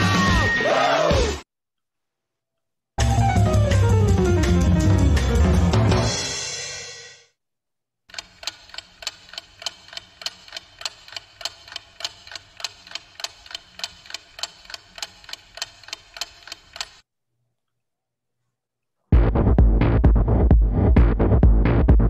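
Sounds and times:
steady ticking: 0:08.1 - 0:17.0.

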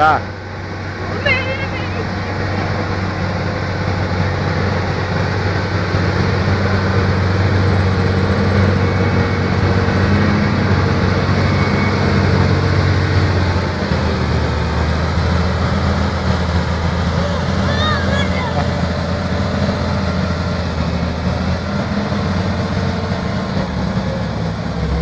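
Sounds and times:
tractor diesel engine under load: 0:00.0 - 0:25.0.

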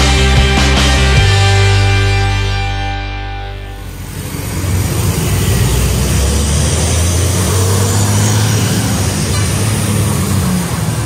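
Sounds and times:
road traffic noise: 0:01.9 - 0:11.0
bus diesel engine passing: 0:03.4 - 0:11.0.

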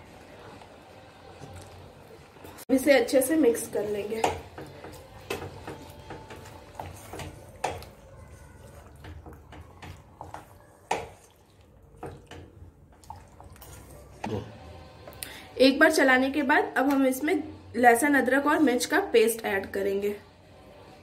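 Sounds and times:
wet squelching of stirred marinade: 0:00.0 - 0:14.3
spoon knocking and scraping pot: 0:03.6 - 0:13.9.

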